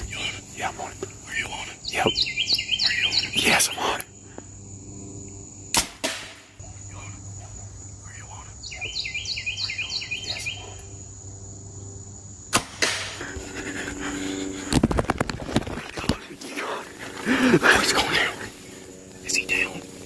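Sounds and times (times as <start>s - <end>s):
bird chirping: 0.0s - 4.0s, 6.6s - 12.0s
high insect drone: 0.0s - 20.0s.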